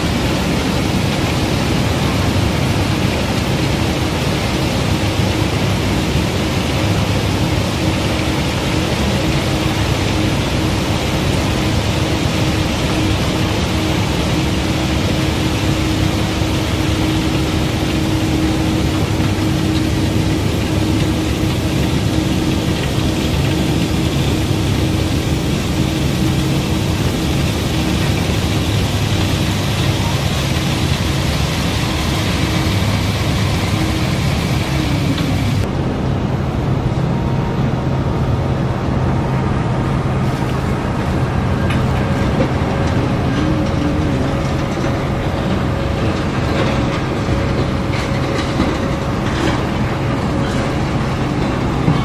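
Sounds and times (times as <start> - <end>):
gravel pouring hiss: 0.0 - 35.7, 40.2 - 51.8
low engine drone: 0.0 - 52.0.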